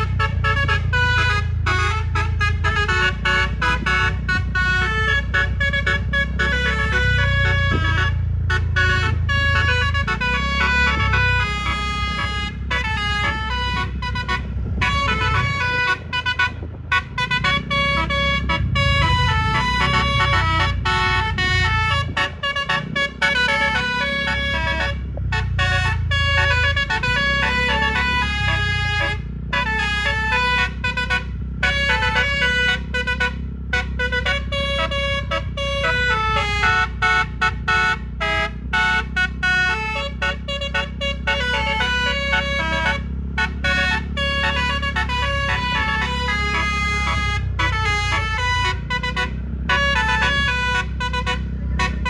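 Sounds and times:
low rumble: 0:00.0 - 0:36.6
musical air horn melody: 0:00.0 - 0:52.0.

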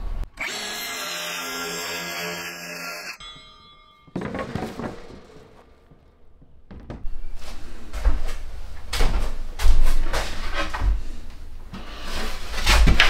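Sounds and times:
circular saw spinning down: 0:00.4 - 0:03.2
wooden board knocks and thumps: 0:04.1 - 0:07.1.

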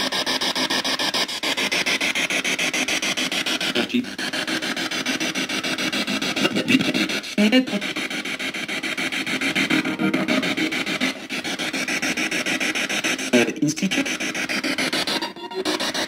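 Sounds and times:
snatches of broadcast sound: 0:06.2 - 0:16.0
chopped radio static: 0:06.4 - 0:07.9, 0:09.4 - 0:11.4.

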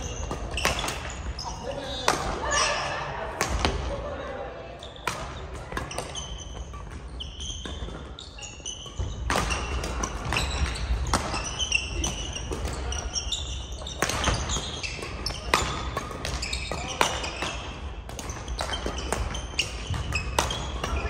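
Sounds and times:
racket striking shuttlecock: 0:00.1 - 0:01.3, 0:08.8 - 0:12.8, 0:13.8 - 0:21.0
shoes squeaking on wooden floor: 0:05.9 - 0:15.7, 0:16.3 - 0:17.6.

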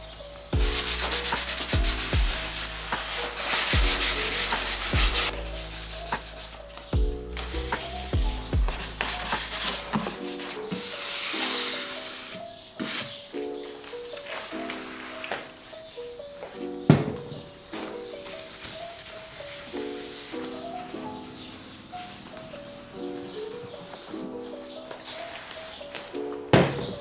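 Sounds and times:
background music: 0:00.0 - 0:27.0
sandpaper rubbing painted surface: 0:00.6 - 0:13.3, 0:18.2 - 0:24.2, 0:25.0 - 0:25.9.

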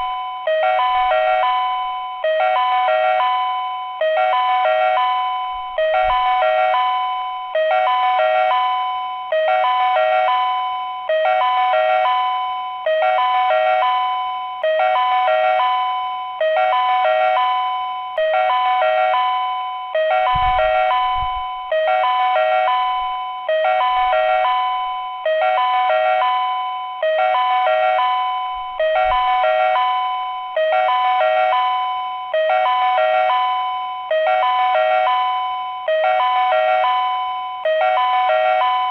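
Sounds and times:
electronic two-note chime: 0:20.3 - 0:21.8.

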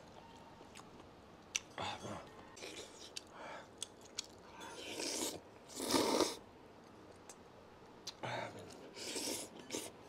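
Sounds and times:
man chewing and slurping noodles: 0:02.6 - 0:06.4, 0:08.0 - 0:10.0.

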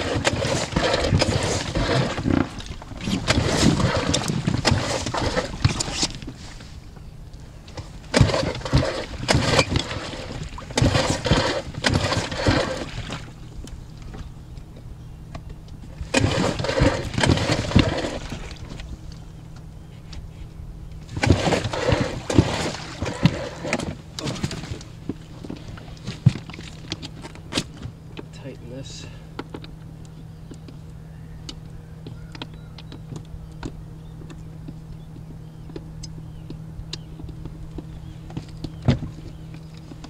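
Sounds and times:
outboard engine pull-start cranking: 0:00.0 - 0:06.4, 0:07.7 - 0:13.4, 0:16.0 - 0:19.0, 0:21.0 - 0:28.3.

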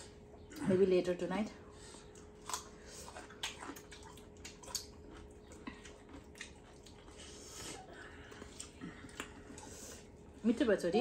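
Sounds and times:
faint steady hum: 0:00.0 - 0:11.0
wet chewing smacks: 0:01.8 - 0:10.4.

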